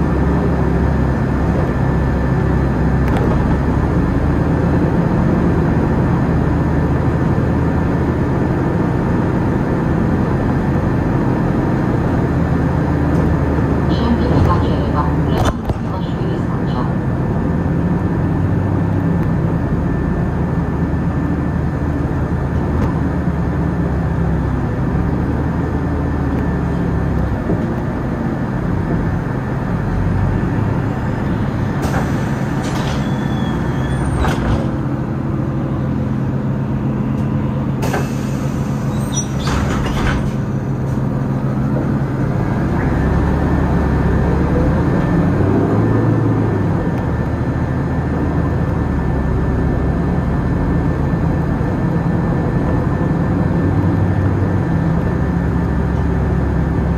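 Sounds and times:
bus engine running: 0.0s - 56.9s
bus engine whine: 0.0s - 56.9s.

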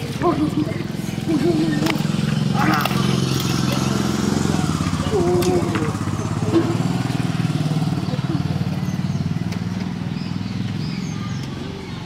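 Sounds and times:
motorcycle passing by: 0.0s - 12.0s.

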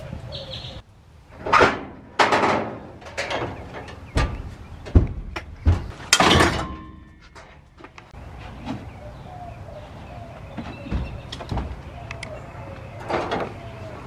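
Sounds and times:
knocks and thumps on shelves: 1.5s - 8.0s, 10.6s - 11.8s.

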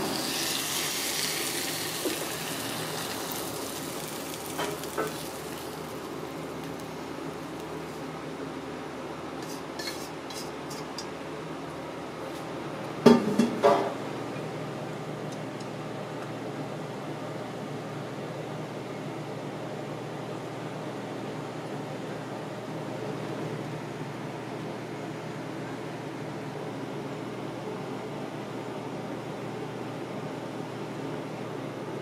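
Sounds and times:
wok sizzling: 0.0s - 8.2s.

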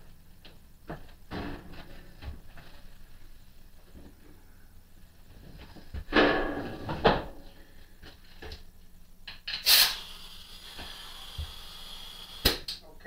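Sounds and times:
short hissing rush: 9.6s - 12.4s.

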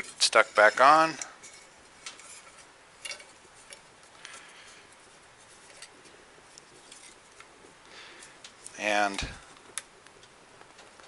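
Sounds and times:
wire rubbing: 0.0s - 11.0s.

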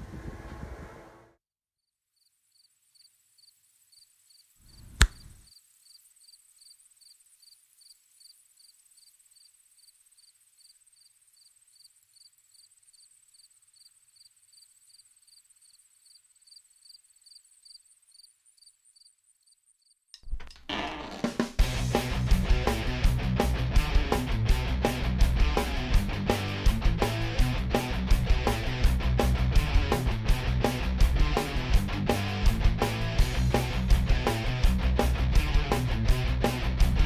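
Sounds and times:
faint high-pitched chirping: 2.2s - 20.1s
sharp knock: 4.8s - 5.4s.

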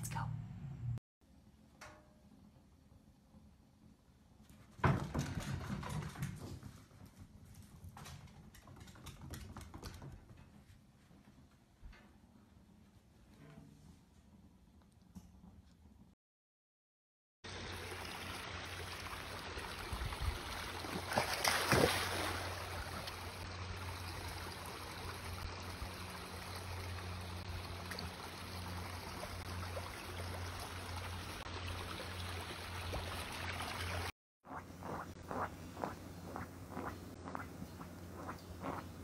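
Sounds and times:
shallow stream running over rocks: 17.5s - 34.1s.

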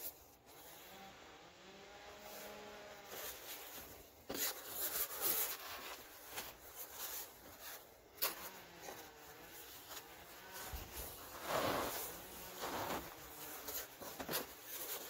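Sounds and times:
hands crunching through powder: 10.8s - 13.7s.

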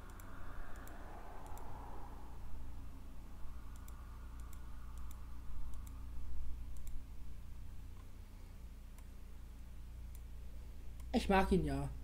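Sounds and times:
computer mouse clicks: 0.0s - 1.7s, 3.7s - 6.0s, 6.7s - 7.0s, 8.9s - 9.1s, 10.1s - 10.3s
low steady hum: 0.0s - 12.0s.

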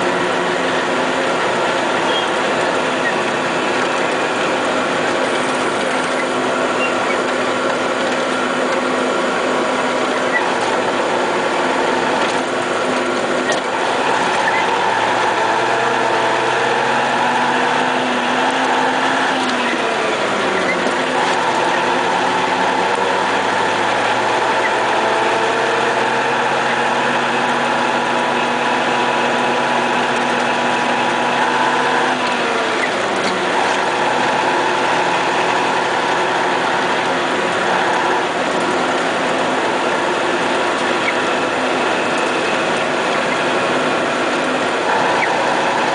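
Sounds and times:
diesel engine running: 0.0s - 45.9s.

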